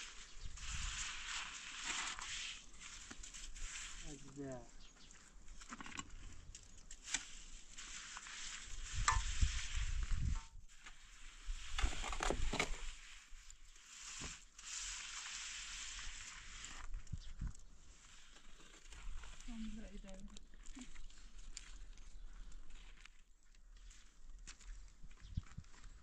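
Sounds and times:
trowel scraping wet mortar: 0.0 - 4.4, 5.5 - 17.0, 17.9 - 19.8.

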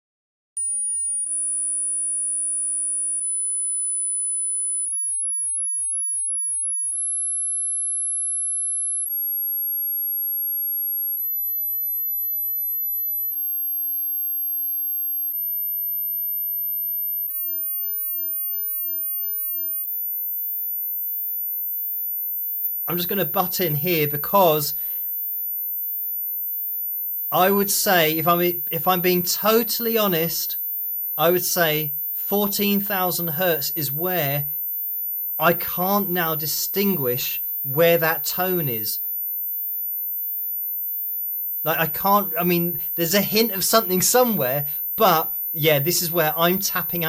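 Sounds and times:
sine wave test tone stepping up: 0.6 - 47.0.

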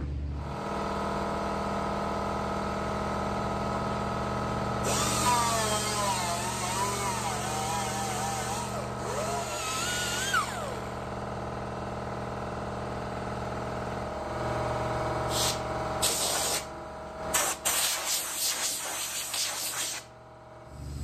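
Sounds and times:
machine hum: 0.0 - 16.0, 20.1 - 21.0
air grinder whine: 4.7 - 11.2, 14.4 - 21.0
compressed air hissing: 15.3 - 16.7, 17.3 - 20.1.

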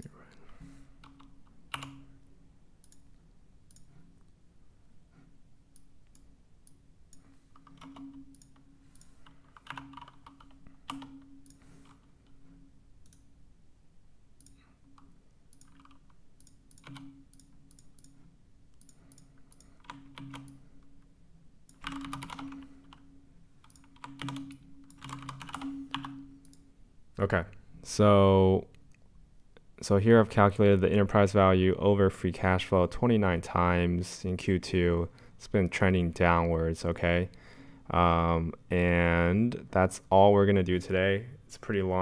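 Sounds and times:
computer keyboard typing: 1.0 - 2.1, 7.2 - 12.1, 14.4 - 18.2, 18.8 - 20.6, 21.7 - 26.6
mouse clicking: 2.8 - 4.0, 5.7 - 12.4, 14.4 - 20.6, 23.6 - 26.6.

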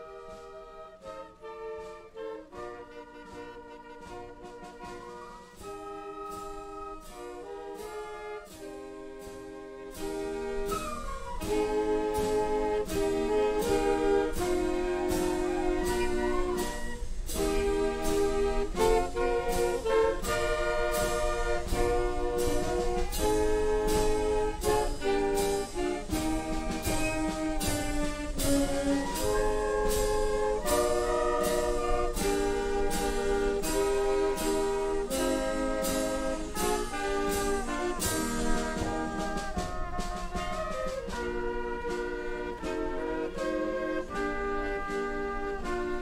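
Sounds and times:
brass band playing a march: 0.0 - 46.0.

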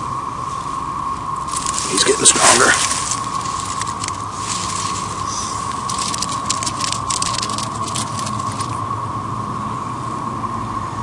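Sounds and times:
cicadas droning: 0.0 - 11.0
rustling of grass and pine needles: 0.5 - 8.8.

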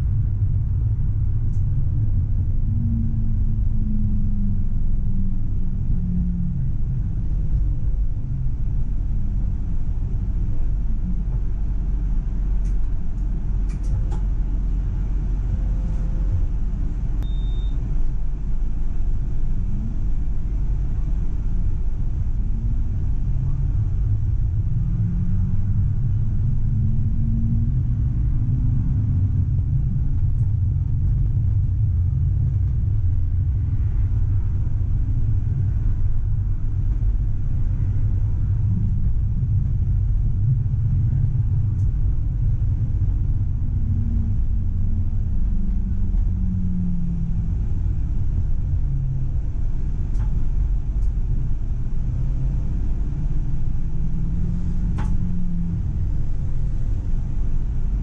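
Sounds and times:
tram rumbling on track: 0.0 - 58.0
faint motor tone: 15.6 - 29.0.

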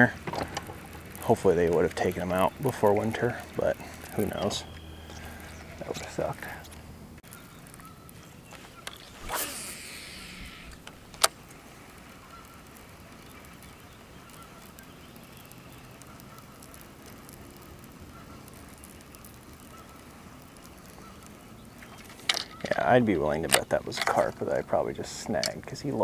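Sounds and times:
faint bird calls: 1.4 - 25.4
fishing reel spool whirring: 8.8 - 11.3.

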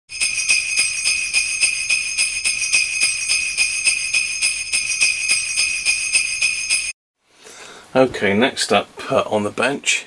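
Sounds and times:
sleigh bells jingling: 0.1 - 7.0.

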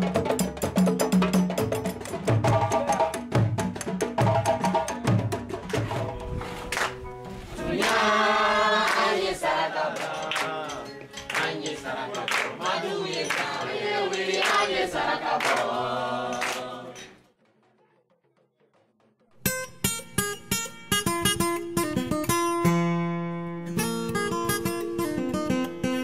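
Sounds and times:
acoustic guitar: 0.0 - 14.1, 19.3 - 26.0
hand clapping: 6.6 - 7.1, 7.8 - 17.2
group of voices singing: 7.5 - 17.2.

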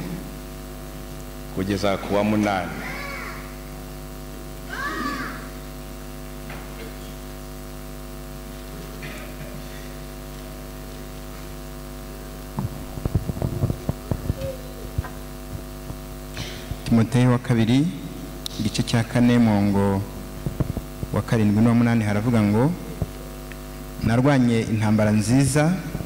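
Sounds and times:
electrical mains hum: 0.0 - 26.0
irregular knocks and bumps: 12.6 - 16.0.

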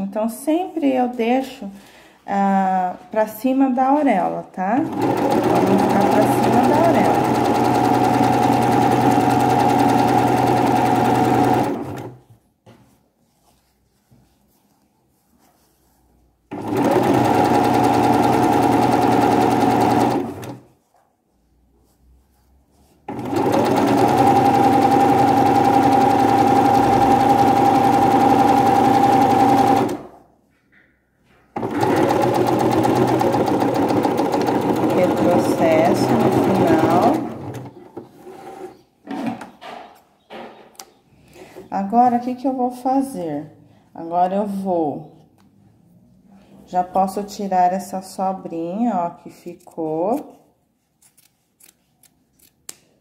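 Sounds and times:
sewing machine stitching: 4.8 - 12.2, 16.5 - 20.7, 23.1 - 30.2, 31.6 - 38.0.

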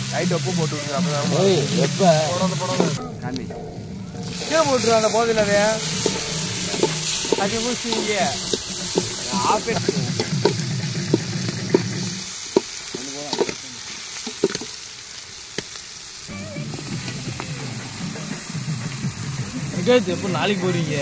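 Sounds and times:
onions sizzling in oil: 0.0 - 21.0
ladle scraping metal pot: 4.2 - 12.2.

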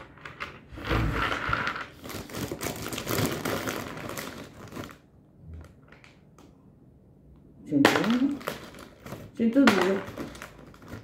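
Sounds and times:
plastic bag crinkling: 0.0 - 6.4, 7.9 - 11.0.

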